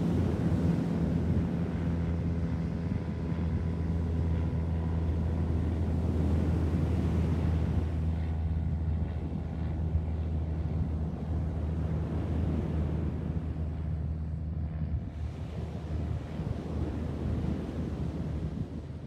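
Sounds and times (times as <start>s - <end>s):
low engine drone: 0.0s - 19.0s
wind on microphone: 0.0s - 19.0s.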